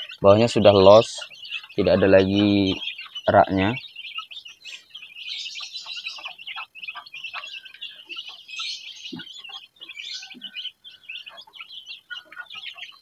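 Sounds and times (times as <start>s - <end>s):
beaks pecking on plastic trays: 0.0s - 13.0s
chicks cheeping: 0.0s - 13.0s.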